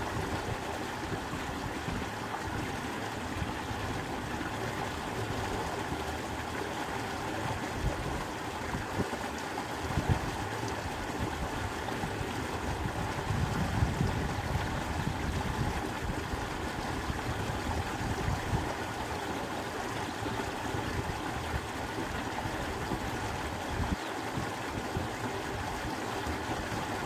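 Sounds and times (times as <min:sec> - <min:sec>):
wind buffeting microphone: 0:09.8 - 0:18.8.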